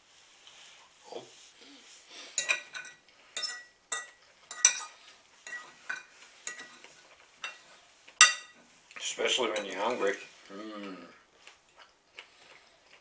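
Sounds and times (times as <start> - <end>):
fork clinking on a plate: 2.4 - 7.6, 8.2 - 8.6.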